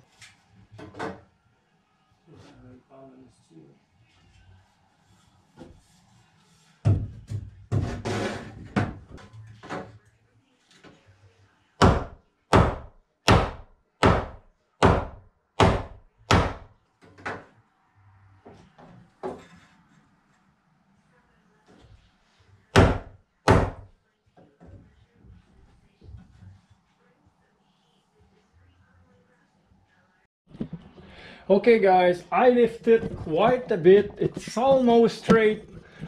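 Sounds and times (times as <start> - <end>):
hammer striking wood: 11.8 - 16.7, 22.8 - 23.9.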